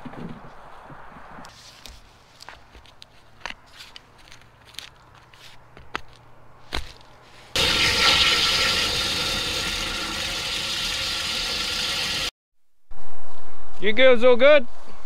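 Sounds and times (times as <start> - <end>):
running water: 7.6 - 12.3.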